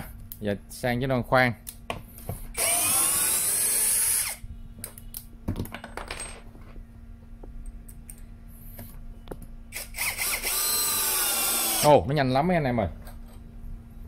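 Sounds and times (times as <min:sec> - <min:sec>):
cordless drill boring into wood: 0:02.6 - 0:04.4, 0:09.8 - 0:12.0
drill bits clicking and rattling: 0:02.6 - 0:04.4, 0:09.8 - 0:11.9.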